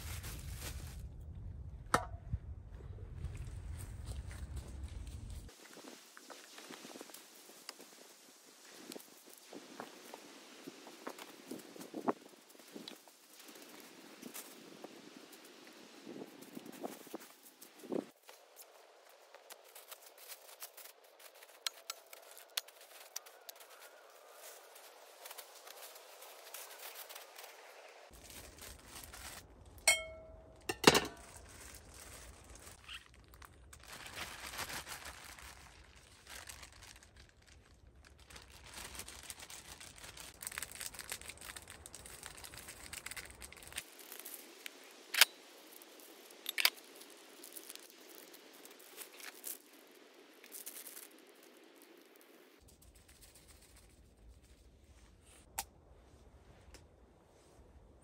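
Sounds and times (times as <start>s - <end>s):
paper and plastic bags crinkling: 0.0s - 1.1s, 16.6s - 29.8s, 30.7s - 44.8s.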